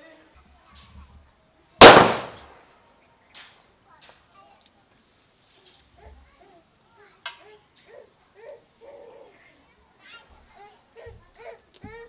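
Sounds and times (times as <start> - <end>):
high insect trill: 0.0 - 12.0
sharp loud crack: 1.8 - 2.6.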